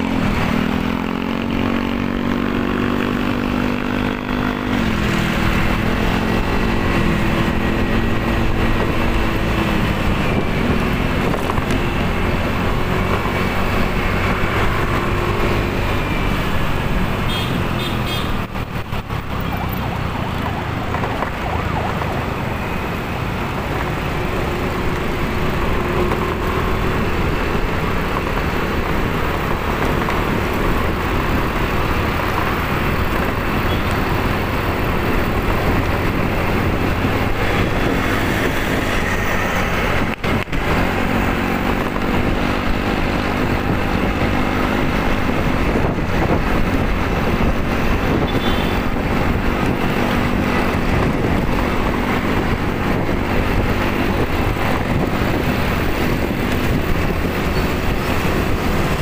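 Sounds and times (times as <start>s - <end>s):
wind noise on microphone: 0.0s - 59.0s
motorcycle engine running: 22.4s - 59.0s.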